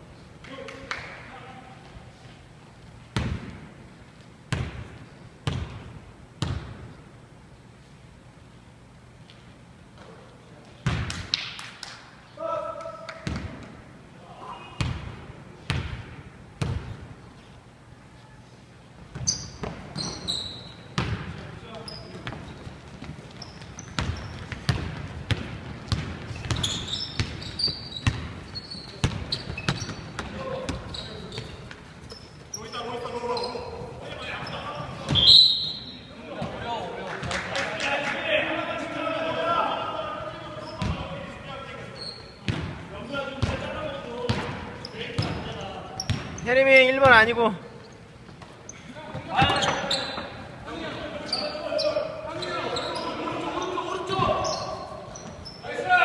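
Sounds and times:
basketball bouncing on wooden floor: 5.4s - 5.8s, 22.2s - 28.4s, 29.0s - 31.5s
sneaker squeaks: 19.1s - 36.6s, 40.3s - 56.0s.

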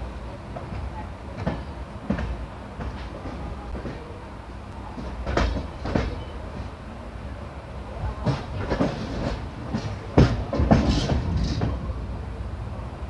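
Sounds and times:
train wheels rumbling on rail: 0.0s - 13.0s
wheels clacking on rail joints: 0.6s - 6.8s, 8.0s - 12.0s.

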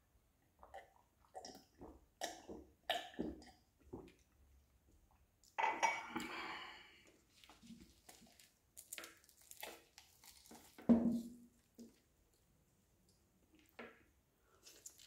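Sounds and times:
crisp chicken skin crackling: 8.0s - 10.8s
meat ripping: 8.0s - 10.8s.

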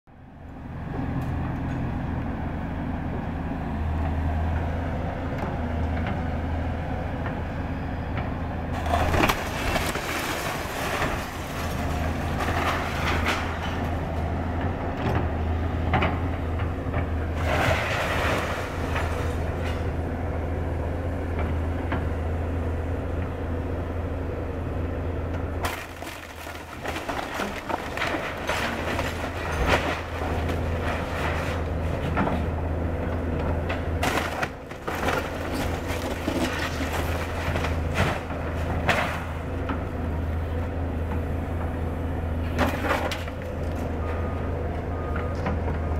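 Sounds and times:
excavator engine humming: 0.1s - 45.9s
wood cracking and splintering: 8.8s - 14.0s, 17.4s - 19.8s, 25.6s - 32.2s, 33.7s - 39.4s, 42.6s - 43.9s.

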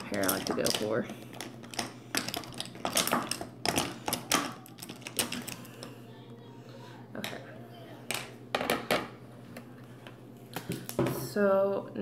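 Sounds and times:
makeup items clicking and clattering: 0.0s - 5.9s
low steady hum: 0.0s - 12.0s.

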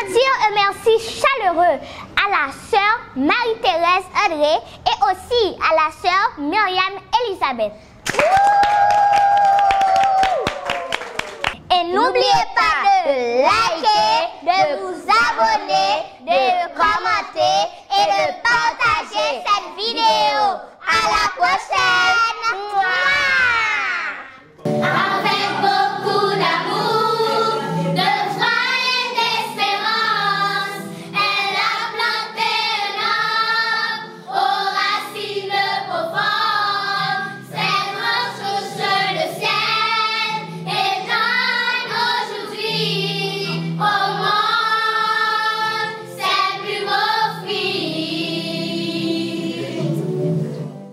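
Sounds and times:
girls choir singing: 13.5s - 23.4s, 24.6s - 50.2s.

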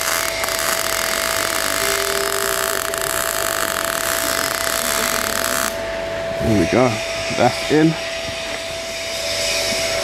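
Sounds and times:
welding arc crackling and hissing: 0.0s - 5.8s
thin whine: 0.0s - 10.0s.

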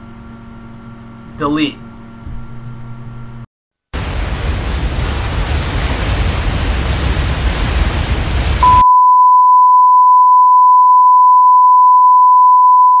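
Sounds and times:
loud static with low rumble: 0.0s - 8.8s.

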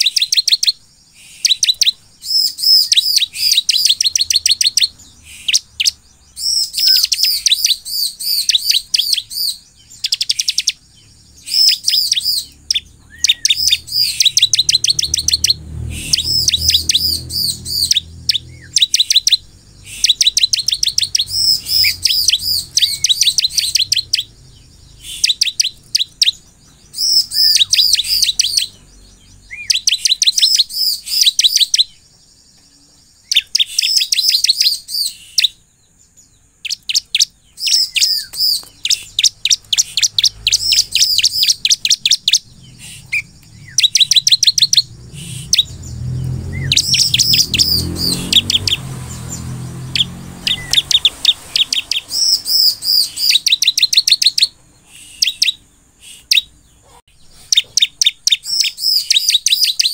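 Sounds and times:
bird chirping high and fast: 0.0s - 59.9s
low rumble: 40.3s - 49.8s.

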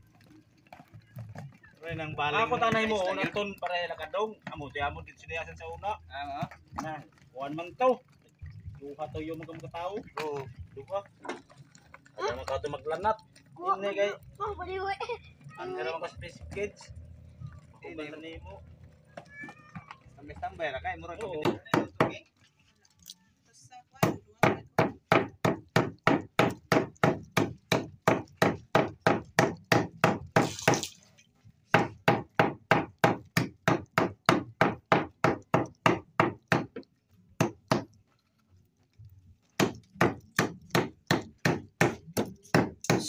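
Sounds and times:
knife chopping fish on wooden board: 21.4s - 22.2s, 24.0s - 30.9s, 31.7s - 38.0s, 39.6s - 43.0s.

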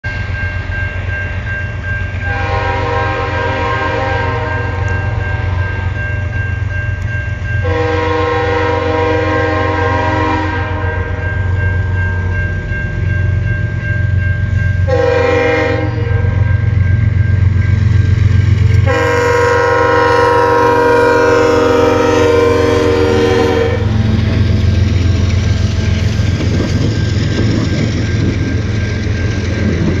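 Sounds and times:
crossing bell ringing: 0.0s - 30.0s
freight cars rumbling on rails: 0.1s - 30.0s
locomotive air horn blasts: 2.2s - 5.9s, 7.6s - 11.2s, 14.9s - 16.5s, 18.8s - 24.2s.

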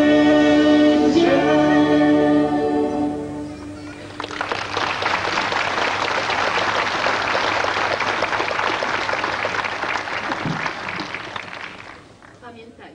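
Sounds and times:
audience applauding: 3.5s - 12.4s.

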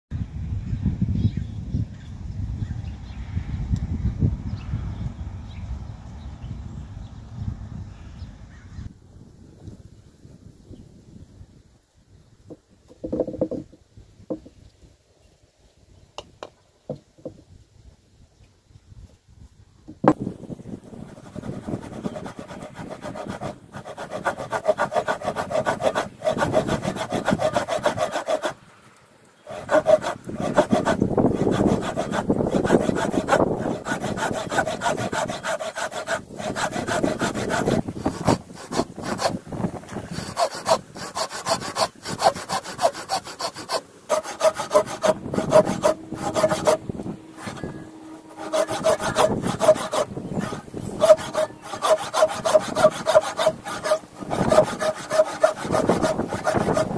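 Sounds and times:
hand saw cutting wood: 20.9s - 28.6s, 29.5s - 56.9s.

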